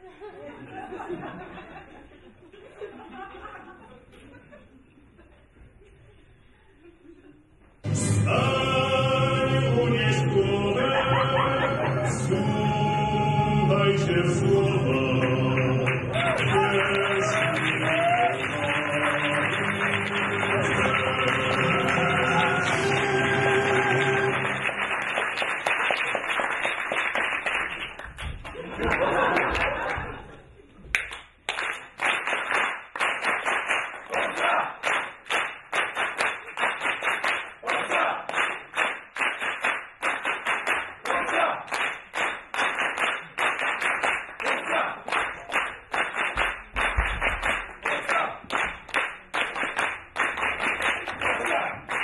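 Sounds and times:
music: 0:07.8 - 0:25.2
rhythmic hand clapping: 0:15.0 - 0:30.2, 0:30.9 - 0:52.0.

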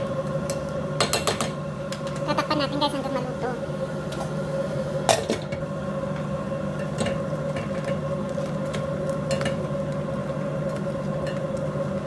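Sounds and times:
steady hum: 0:00.0 - 0:12.0
sauce bubbling in a pot: 0:03.6 - 0:12.0.

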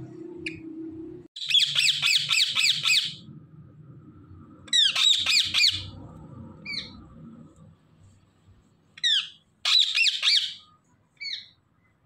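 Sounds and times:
parakeets screeching: 0:01.4 - 0:03.3, 0:04.7 - 0:06.0, 0:09.0 - 0:11.6.

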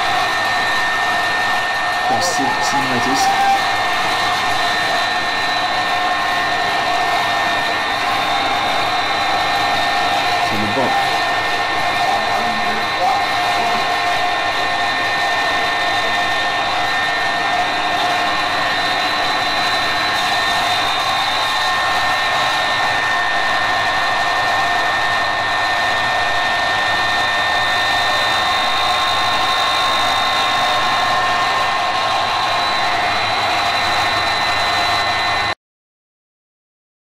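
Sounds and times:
high-pitched whine: 0:02.0 - 0:04.0.

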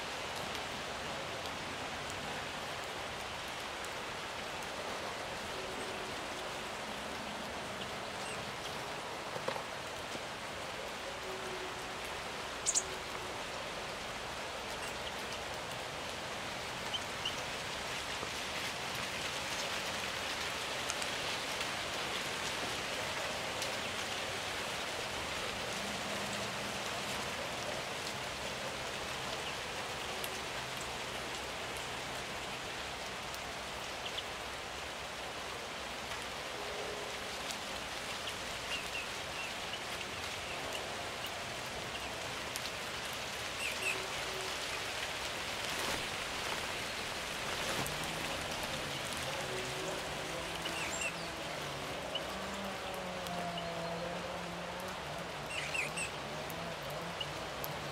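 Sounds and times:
steady outdoor hiss: 0:00.0 - 0:57.9.

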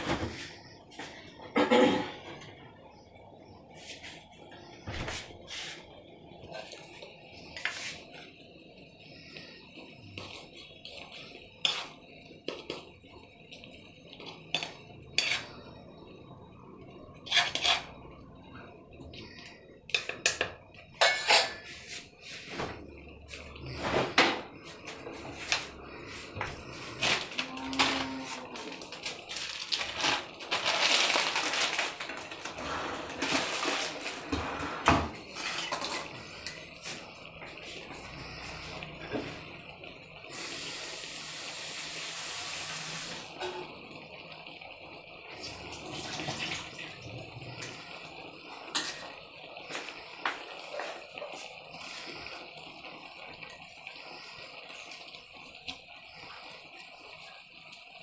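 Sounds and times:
ladle scraping iron pan: 0:17.3 - 0:17.9, 0:21.0 - 0:22.0.

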